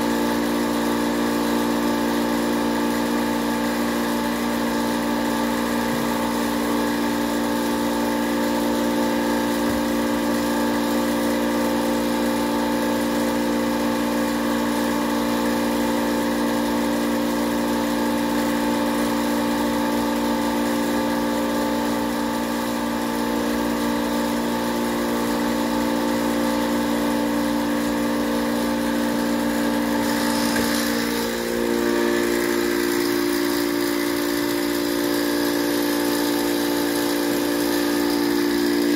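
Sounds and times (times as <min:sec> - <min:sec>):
electric air compressor humming: 0:00.0 - 0:38.9
gas hissing: 0:03.4 - 0:08.4, 0:28.8 - 0:38.9.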